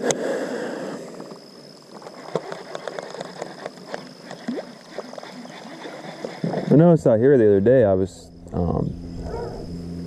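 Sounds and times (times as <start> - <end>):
water lapping against boat: 3.2 - 7.0.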